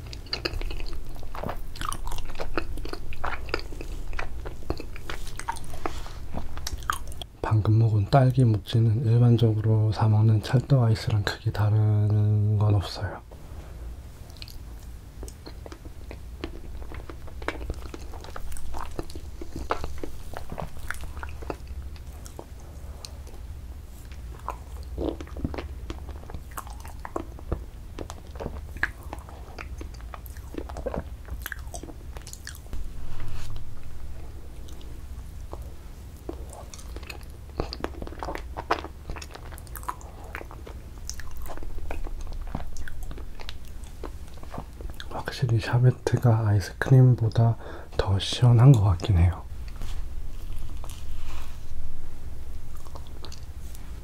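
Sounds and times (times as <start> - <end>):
wet mouth smacks and lip clicks: 0.0 - 7.3.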